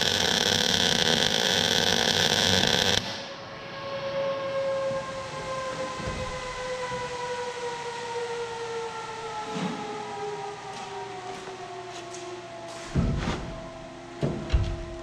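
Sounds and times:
small motor whine spinning down: 0.0 - 3.3.

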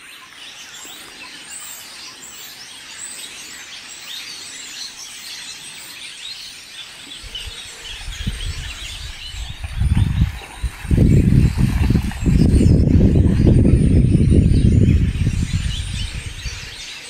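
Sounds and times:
small birds chirping: 0.0 - 17.0
low pulsing rumble: 9.4 - 16.7.

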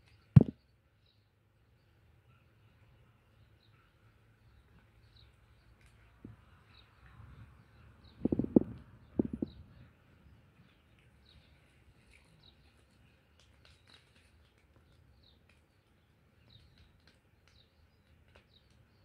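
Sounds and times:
distant birds chirping: 3.3 - 12.7.

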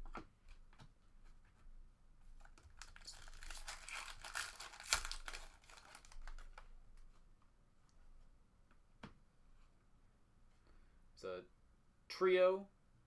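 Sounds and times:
foil wrapper tearing and crinkling: 2.8 - 6.6.

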